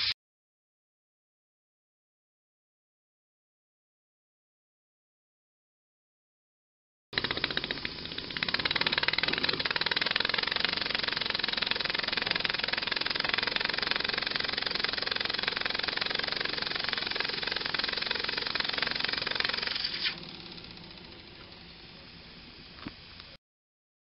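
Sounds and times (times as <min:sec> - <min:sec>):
model engine running fast: 0:07.2 - 0:22.8.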